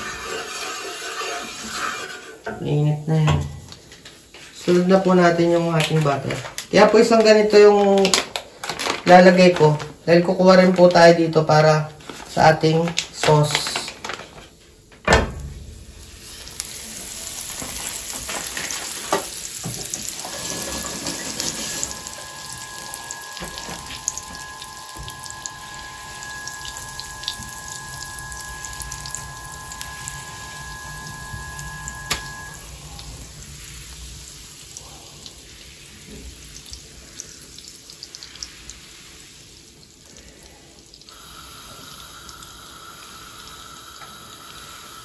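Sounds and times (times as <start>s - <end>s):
butter sizzling and crackling: 0.0s - 2.4s, 16.0s - 45.0s.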